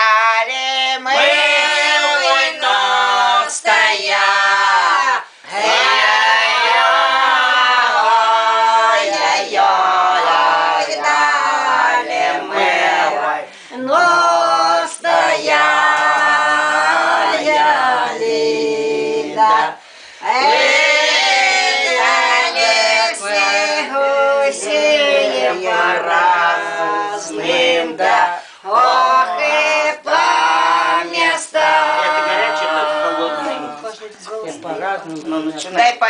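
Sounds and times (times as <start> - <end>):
women singing unaccompanied: 0.0 - 33.8
singers breathing: 13.5 - 13.8, 19.8 - 20.3, 28.4 - 28.7.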